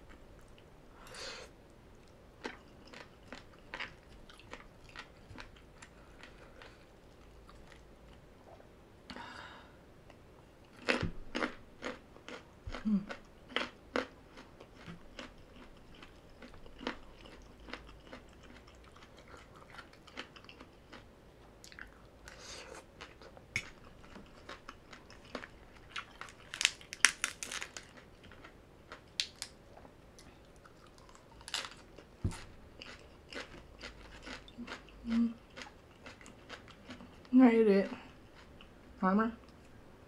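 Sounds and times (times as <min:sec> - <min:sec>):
person chewing crunchy food: 0:02.4 - 0:08.3, 0:10.7 - 0:37.3.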